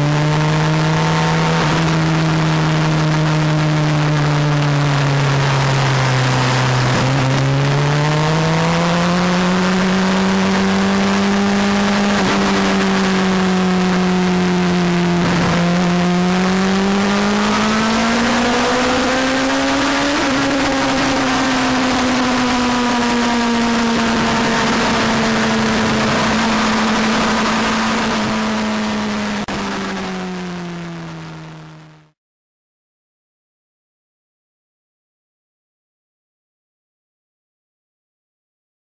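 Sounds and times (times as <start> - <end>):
motorcycle engine running: 0.0 - 32.1
wind rush on microphone: 23.5 - 30.4.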